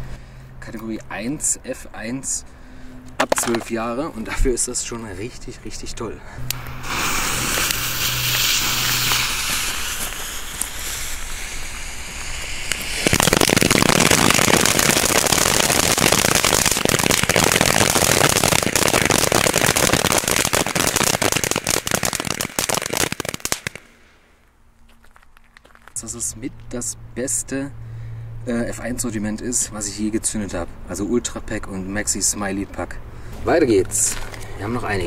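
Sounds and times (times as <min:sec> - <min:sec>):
fireworks crackling and popping: 0:03.2 - 0:03.7, 0:06.4 - 0:24.2
firework fountain hissing: 0:06.5 - 0:24.0.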